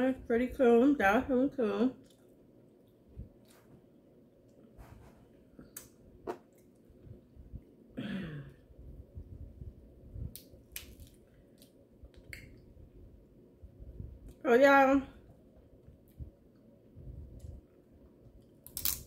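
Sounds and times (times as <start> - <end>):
soft chewing: 2.0 - 7.2
crab shells cracking: 10.3 - 12.5, 18.6 - 19.0.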